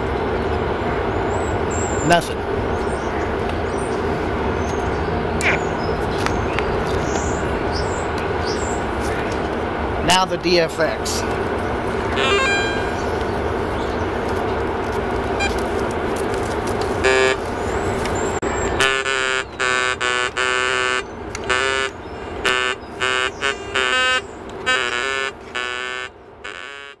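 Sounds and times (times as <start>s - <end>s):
steady rushing noise: 0.0s - 18.9s
metal detector beeps: 12.2s - 13.1s, 15.4s - 15.6s.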